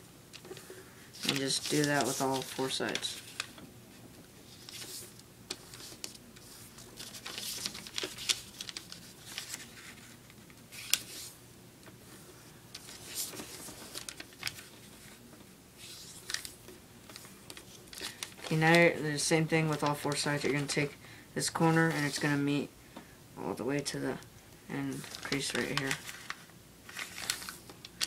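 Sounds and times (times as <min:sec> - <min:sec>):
paper rustling and crackling: 0:00.4 - 0:11.4, 0:12.7 - 0:20.9, 0:21.6 - 0:22.4, 0:24.8 - 0:28.0.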